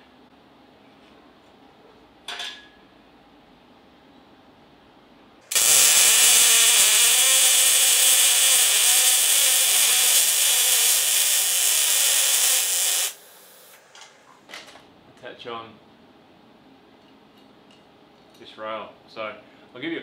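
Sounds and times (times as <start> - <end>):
arc welding hiss: 5.5 - 13.9.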